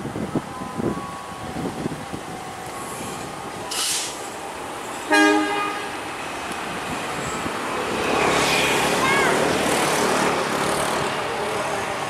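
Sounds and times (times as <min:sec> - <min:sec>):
brief hiss: 0:03.0 - 0:04.3
locomotive horn blast: 0:05.0 - 0:06.0.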